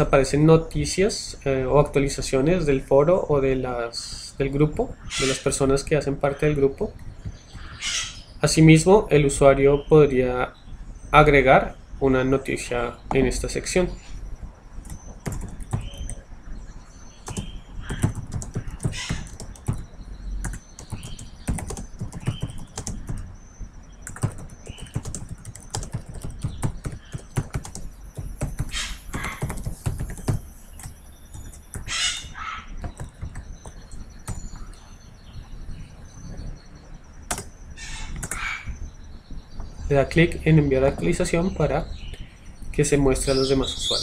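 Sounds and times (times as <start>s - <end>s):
computer keyboard typing: 14.8s - 16.2s, 17.2s - 23.3s, 24.0s - 34.9s, 37.3s - 38.5s.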